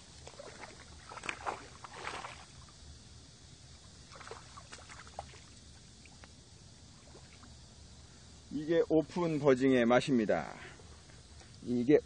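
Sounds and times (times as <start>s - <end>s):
fish splashing in water: 0.0s - 2.8s, 4.0s - 6.2s.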